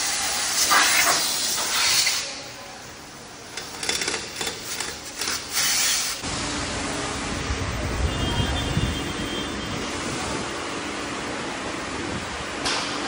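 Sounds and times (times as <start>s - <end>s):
pneumatic impact wrench bursts: 3.6s - 6.2s.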